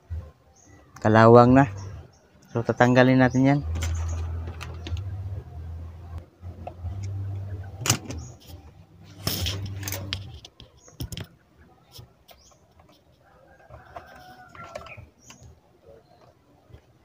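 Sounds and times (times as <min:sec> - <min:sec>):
low hum: 0:03.6 - 0:10.4.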